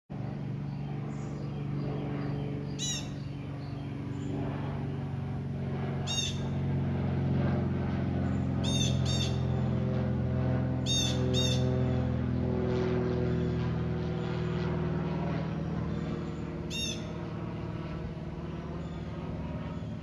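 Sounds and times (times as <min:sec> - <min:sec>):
propeller plane droning overhead: 0:00.1 - 0:20.0
bird chirps: 0:01.4 - 0:04.3, 0:08.6 - 0:09.4, 0:10.9 - 0:11.7, 0:16.7 - 0:17.1.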